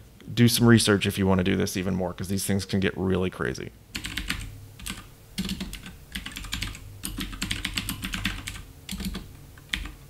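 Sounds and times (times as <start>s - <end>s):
keyboard typing: 4.0s - 10.0s.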